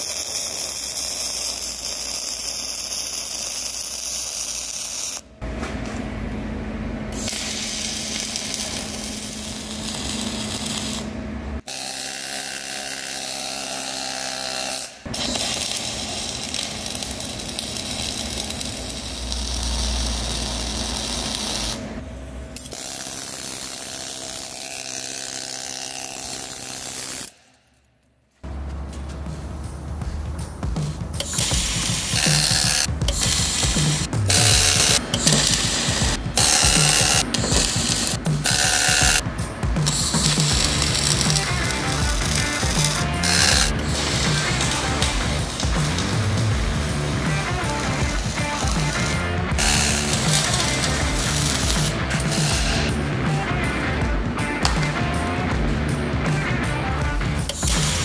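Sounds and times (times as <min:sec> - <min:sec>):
welding arc crackling: 0:00.0 - 0:05.3, 0:07.1 - 0:11.8, 0:14.1 - 0:22.0, 0:28.5 - 0:55.6, 0:56.9 - 0:58.0.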